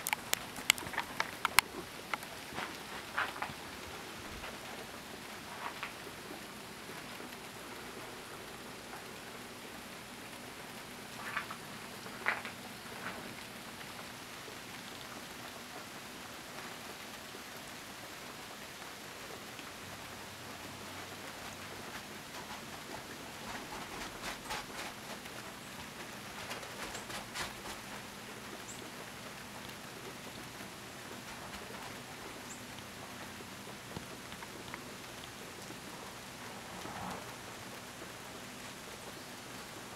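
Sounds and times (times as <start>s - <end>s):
sharp ticks of ice: 0.0s - 2.3s
freezing rain hissing on ice: 0.0s - 39.9s.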